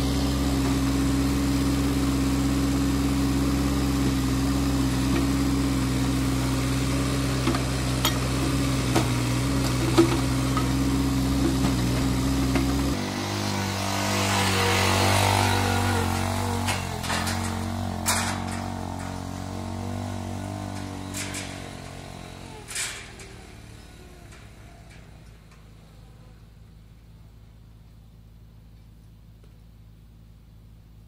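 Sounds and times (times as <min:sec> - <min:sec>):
atv engine driving: 0:00.0 - 0:30.3
engine idling: 0:00.0 - 0:31.0
sharp knocks and rattles: 0:07.3 - 0:13.0, 0:14.7 - 0:25.8.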